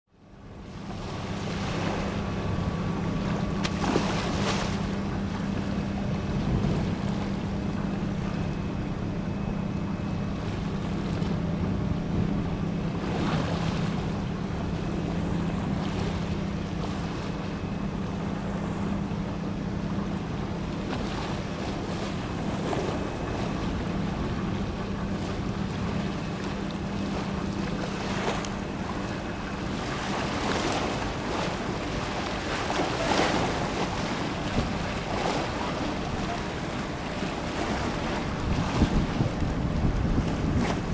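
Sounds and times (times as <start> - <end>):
low mechanical hum: 0.1 - 40.9
water lapping: 0.6 - 40.9
wind buffeting microphone: 1.6 - 14.3, 21.6 - 40.9.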